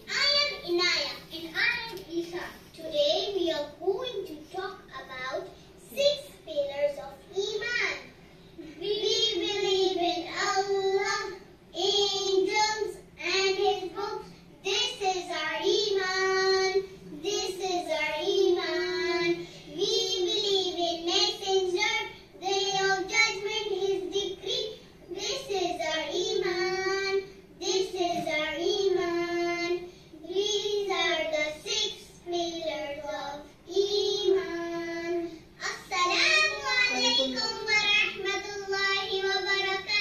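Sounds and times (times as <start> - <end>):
child singing: 8.8 - 40.0.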